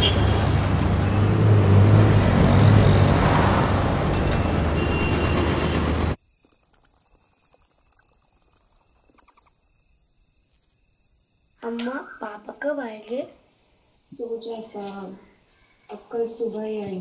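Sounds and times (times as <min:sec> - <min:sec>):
city traffic: 0:00.0 - 0:06.2
crickets chirping: 0:06.2 - 0:16.6.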